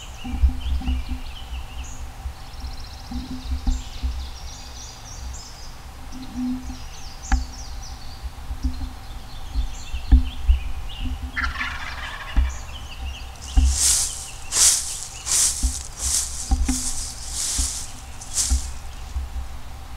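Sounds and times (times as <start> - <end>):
songbirds singing: 0.0 - 19.4
turkey gobbling: 11.4 - 12.6.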